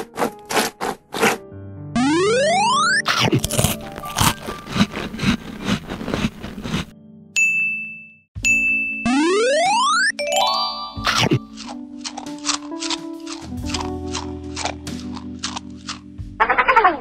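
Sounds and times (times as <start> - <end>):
crunchy munching of ice-cream cone: 0.0 - 1.4, 3.1 - 6.9, 11.5 - 16.1
rising electronic sweep: 2.0 - 3.1
short high ding: 7.4 - 9.1.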